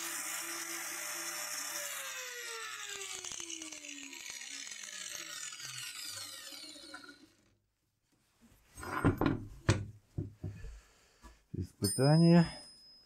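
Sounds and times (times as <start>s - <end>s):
angle grinder spinning down: 0.0s - 7.6s.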